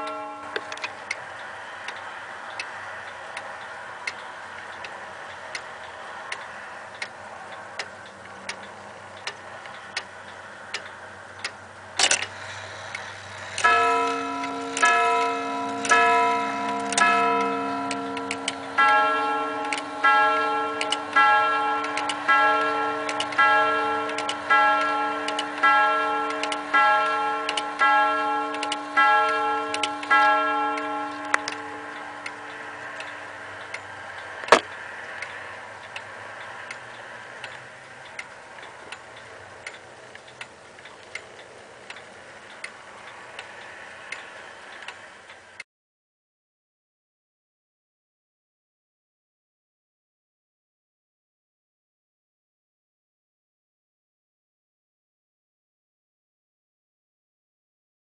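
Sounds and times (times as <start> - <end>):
clock gong strikes: 0.0 - 0.9, 12.3 - 33.4
clock ticking: 0.0 - 45.6
clock strike-work click: 7.8 - 45.6.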